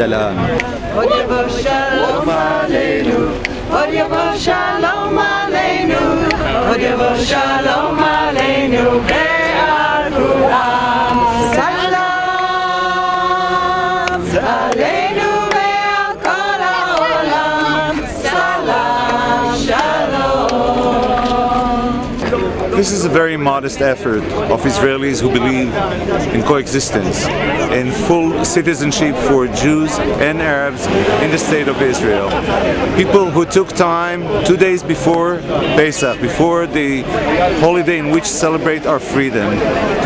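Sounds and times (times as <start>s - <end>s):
group singing unaccompanied: 0.0s - 40.0s.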